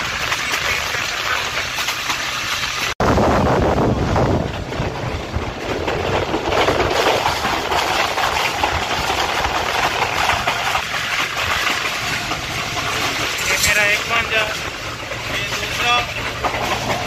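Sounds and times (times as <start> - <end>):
passenger train running: 0.0 - 17.0
wheels rattling clicks: 4.2 - 17.0.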